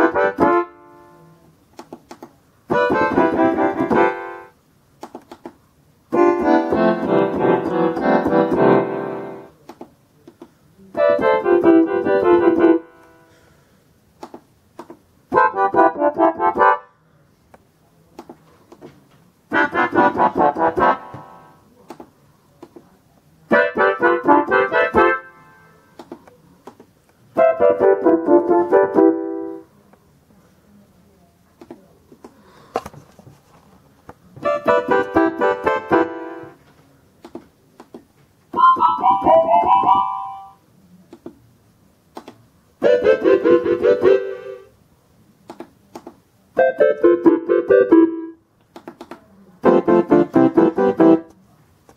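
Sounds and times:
electronic keyboard notes: 0:00.0 - 0:01.3, 0:02.7 - 0:04.6, 0:06.1 - 0:09.5, 0:11.0 - 0:13.2, 0:15.3 - 0:16.9, 0:19.5 - 0:21.6, 0:23.5 - 0:25.6, 0:27.4 - 0:29.7, 0:34.4 - 0:36.6, 0:38.6 - 0:40.6, 0:42.8 - 0:44.7, 0:46.6 - 0:48.4, 0:49.6 - 0:51.3.

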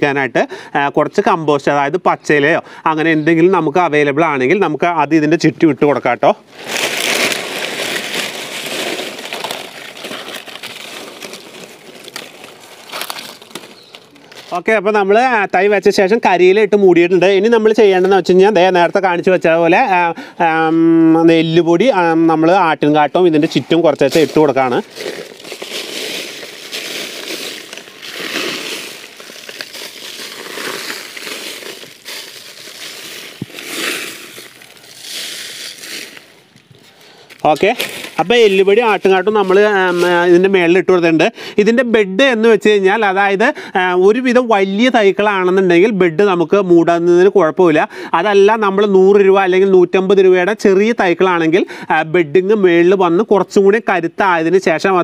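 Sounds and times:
dry leaves crackling and rustling: 0:06.6 - 0:14.6, 0:24.0 - 0:40.5.

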